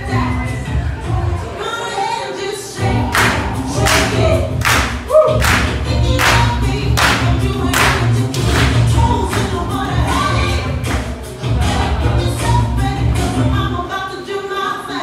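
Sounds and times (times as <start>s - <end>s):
dance music with group singing: 0.0s - 15.0s
sharp clap-like hits: 3.1s - 9.5s.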